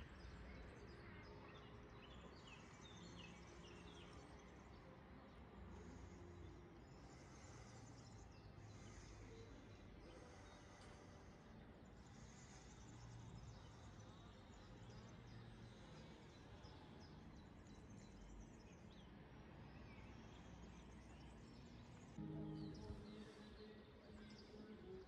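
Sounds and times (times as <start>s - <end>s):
faint outdoor ambient noise: 0.0s - 25.0s.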